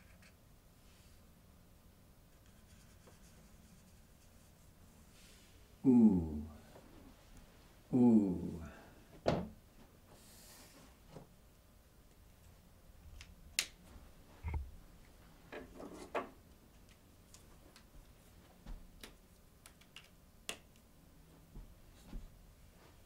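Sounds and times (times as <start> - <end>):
marker clicks and taps: 19.0 - 20.9.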